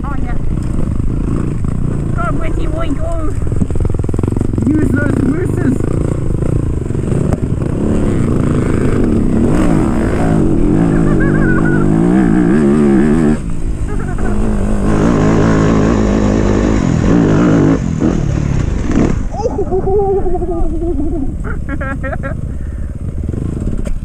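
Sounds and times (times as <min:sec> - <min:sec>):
dirt bike engine revving: 0:00.0 - 0:24.0.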